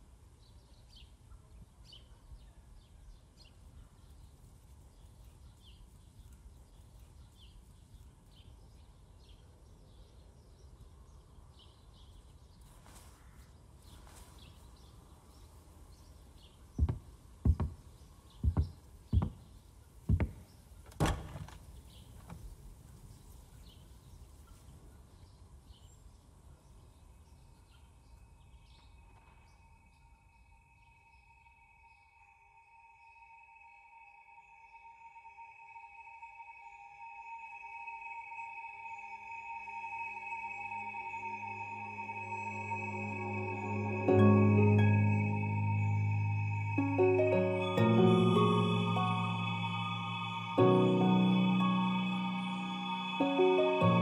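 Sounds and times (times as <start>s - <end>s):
bird chirps: 38.7s - 54.0s.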